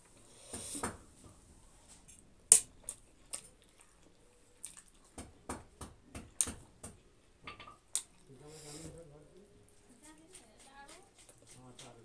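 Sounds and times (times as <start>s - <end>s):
wet chewing and lip smacking: 2.8s - 5.3s.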